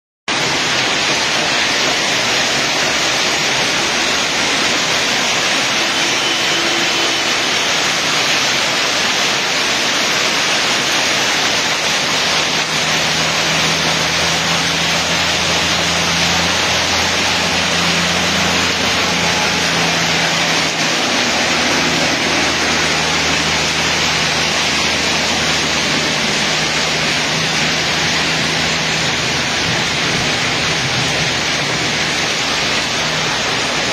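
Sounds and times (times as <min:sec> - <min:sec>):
hailstones pelting ground and roofs: 0:00.3 - 0:33.9
low engine hum: 0:12.1 - 0:33.9.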